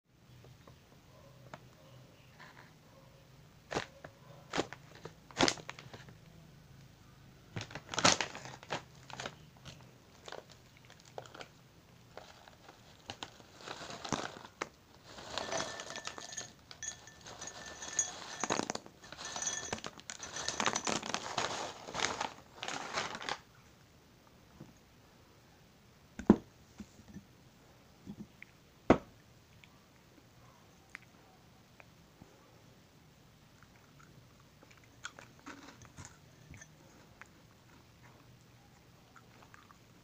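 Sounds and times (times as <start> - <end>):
plastic snack bag crinkling: 4.5 - 6.1, 7.6 - 23.6
cheese sticks pouring into glass: 15.1 - 23.2.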